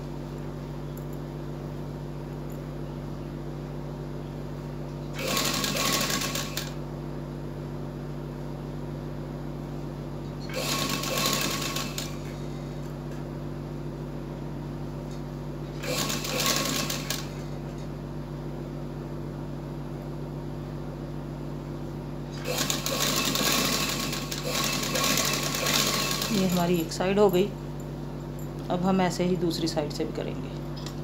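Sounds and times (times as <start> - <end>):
steady low hum: 0.0 - 31.0
sewing machine stitching: 5.2 - 6.8, 10.4 - 12.4, 15.8 - 17.4, 22.3 - 26.8.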